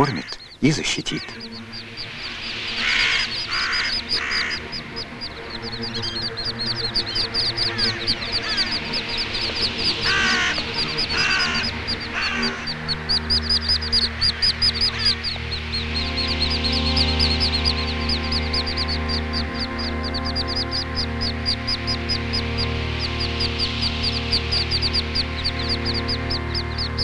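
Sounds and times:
crow cawing: 0:00.0 - 0:26.9
ducklings peeping: 0:00.0 - 0:27.0
soft music with low tones: 0:00.0 - 0:27.0.

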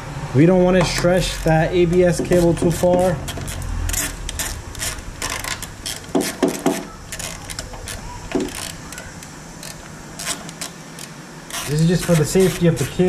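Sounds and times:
hand tool clicking on metal: 0:01.9 - 0:13.0
louder metal knocks: 0:05.2 - 0:06.9.

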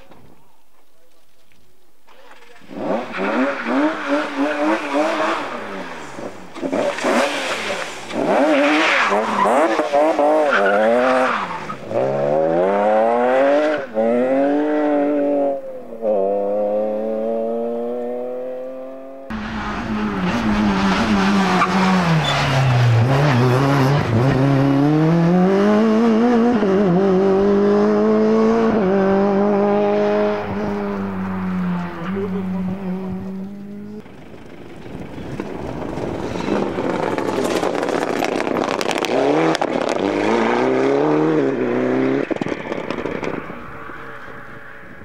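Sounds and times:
rally car sliding on gravel: 0:00.0 - 0:12.8, 0:19.3 - 0:24.4, 0:34.0 - 0:44.6
rally car engine revving: 0:02.1 - 0:44.3
second rally car engine passing: 0:02.6 - 0:43.6.

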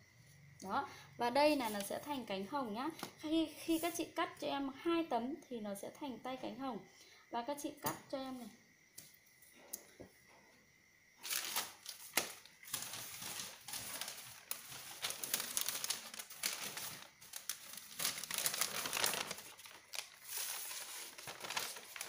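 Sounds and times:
paper crinkling and rustling: 0:11.2 - 0:22.0.

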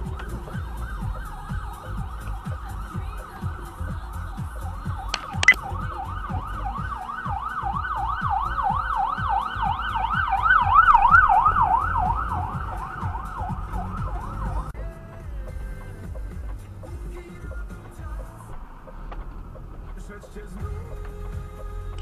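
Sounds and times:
ambulance siren yelping: 0:00.0 - 0:14.8
low car rumble: 0:00.0 - 0:22.0
sharp clicks: 0:05.1 - 0:05.6.

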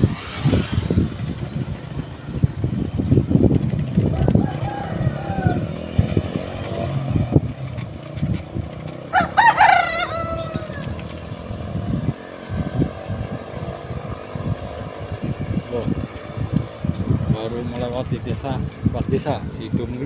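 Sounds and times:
wind buffeting microphone: 0:00.0 - 0:20.0
rooster crowing: 0:04.1 - 0:05.8, 0:09.1 - 0:10.9.

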